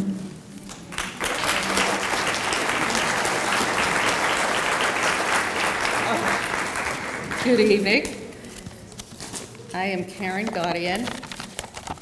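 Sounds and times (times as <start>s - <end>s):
audience applauding: 0.7s - 7.8s.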